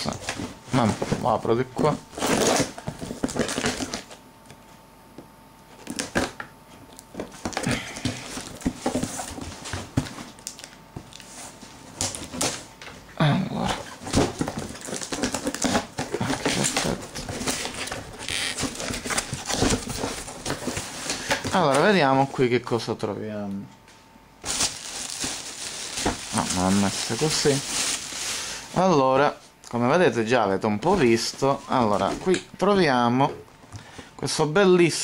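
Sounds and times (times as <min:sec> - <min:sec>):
cardboard scraping and rustling: 0:00.0 - 0:04.2, 0:07.2 - 0:10.4, 0:13.7 - 0:22.0, 0:24.4 - 0:28.9.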